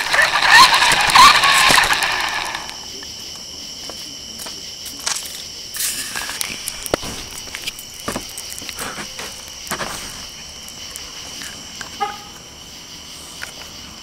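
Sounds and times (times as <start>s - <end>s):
radio-controlled car motor whine: 0.0s - 2.9s
tyres on pavement: 0.0s - 12.6s
crickets chirping: 0.0s - 14.0s.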